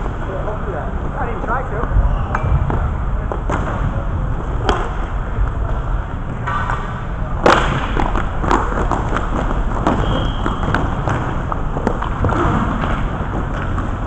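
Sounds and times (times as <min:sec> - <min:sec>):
hockey sticks and puck clacking: 0:04.6 - 0:14.0.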